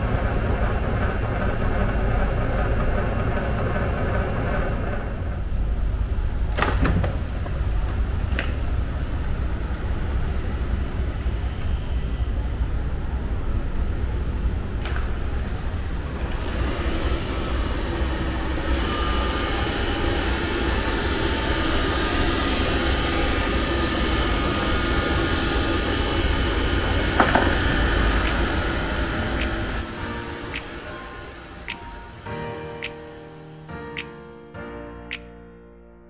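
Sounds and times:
robot vacuum fan running: 0.0 - 32.4
sharp click: 32.8 - 33.0, 34.0 - 34.2, 35.1 - 35.4.

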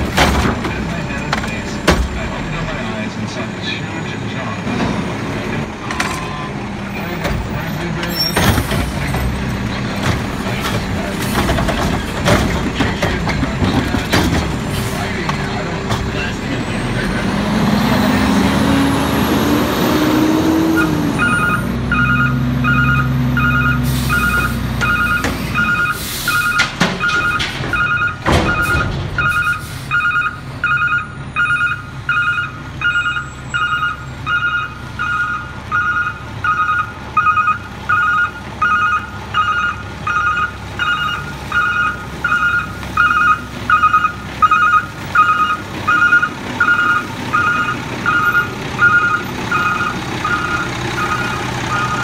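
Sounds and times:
truck engine revving: 0.0 - 52.0
reversing alarm beeping: 20.8 - 52.0.

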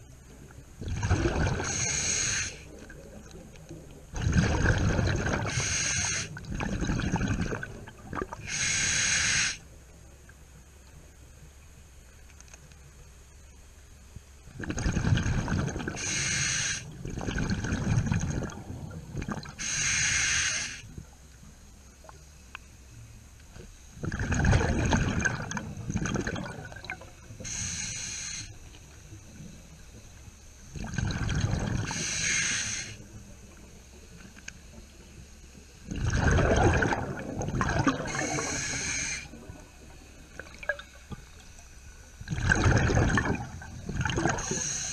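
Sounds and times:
bubbling exhales underwater: 0.8 - 2.1, 4.1 - 8.6, 14.6 - 16.2, 17.0 - 19.7, 24.0 - 27.1, 30.7 - 32.1, 35.9 - 41.4, 42.2 - 44.8
regulator hissing inhales: 1.6 - 2.8, 5.5 - 6.4, 8.4 - 9.6, 16.0 - 17.0, 19.6 - 20.9, 27.4 - 28.7, 31.9 - 33.1, 38.1 - 39.4, 44.4 - 44.9.

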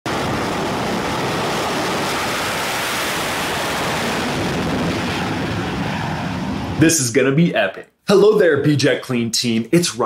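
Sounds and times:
fighter jet engines roaring: 0.1 - 7.4.

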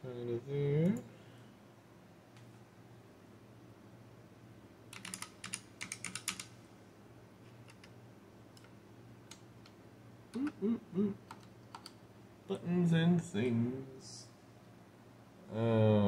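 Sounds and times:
typing on computer keyboard: 4.9 - 6.5, 7.6 - 7.9, 11.2 - 12.0
short voice sounds: 10.4 - 11.3.

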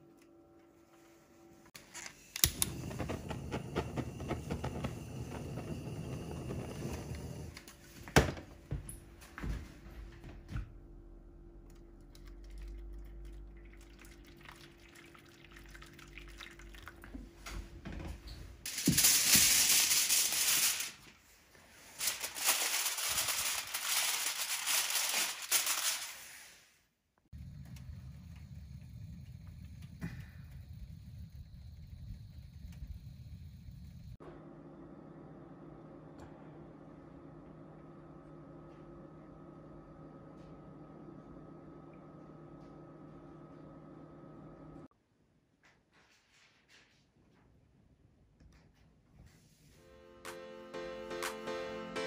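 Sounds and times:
gas torch lighting click: 2.0 - 3.1
torch flame rushing: 2.4 - 7.6
aluminium foil crinkling: 18.7 - 21.2, 21.8 - 26.5.

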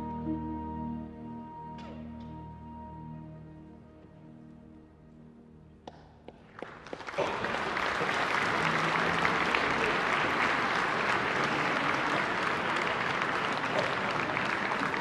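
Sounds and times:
audience applauding: 6.4 - 15.0.

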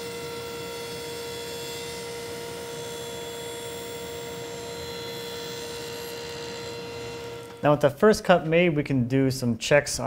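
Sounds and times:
table saw whining: 0.0 - 8.0.

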